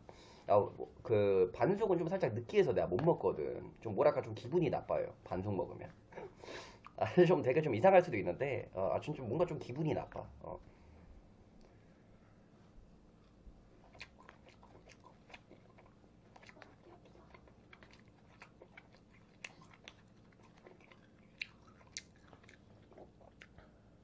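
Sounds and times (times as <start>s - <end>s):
person chewing: 13.2s - 23.8s.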